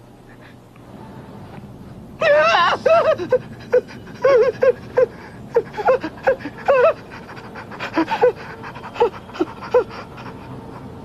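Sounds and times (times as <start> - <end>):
man panting and whimpering: 2.8 - 11.0.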